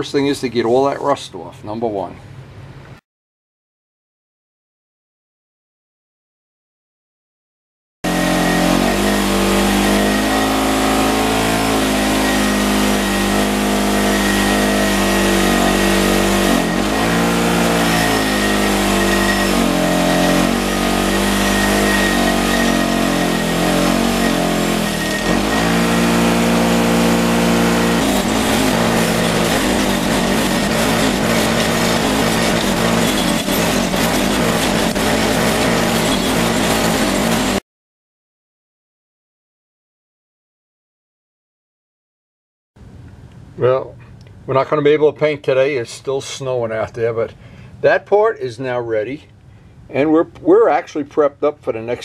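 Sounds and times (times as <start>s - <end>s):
motor hum: 8.1s - 37.6s
wire wheel grinding metal: 8.1s - 37.6s.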